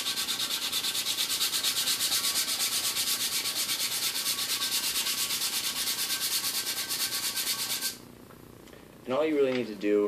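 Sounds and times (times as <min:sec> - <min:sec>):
sandpaper rubbing on metal: 0:00.0 - 0:08.0.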